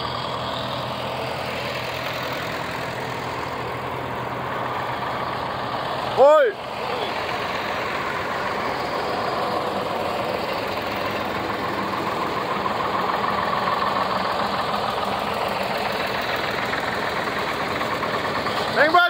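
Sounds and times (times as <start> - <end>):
tractor engines driving past: 0.0 - 19.0.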